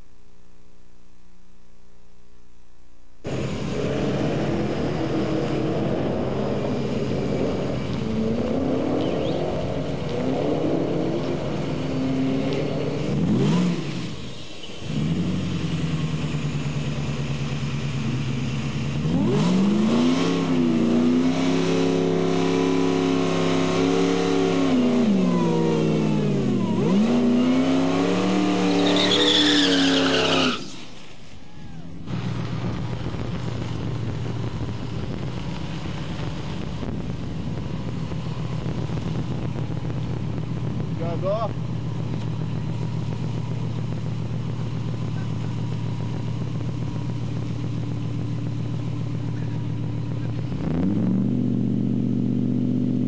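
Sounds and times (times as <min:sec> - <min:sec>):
pickup truck engine revving: 0:03.3 - 0:31.1, 0:32.0 - 0:53.0.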